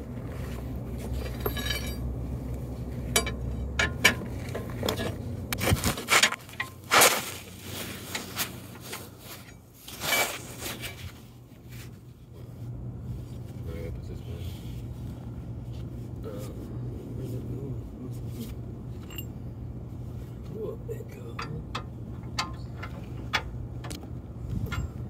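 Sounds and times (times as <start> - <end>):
metal tools clinking: 1.1 - 2.1, 3.0 - 5.2, 18.9 - 19.4, 24.6 - 25.0
metal scrape: 3.9 - 11.8.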